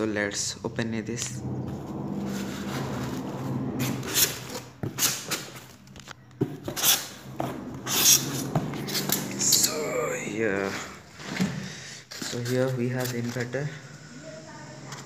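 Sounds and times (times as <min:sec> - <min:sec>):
packing materials rustling and scraping: 0:01.6 - 0:09.8, 0:10.6 - 0:13.6.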